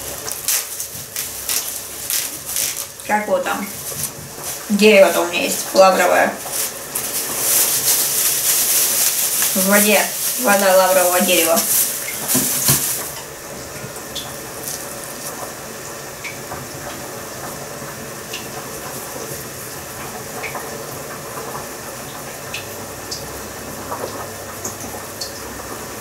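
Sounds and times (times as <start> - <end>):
faint crackles and clicks: 0.0 - 15.5
plastic bag crinkling: 0.0 - 15.5
soft steady hiss: 0.0 - 16.4.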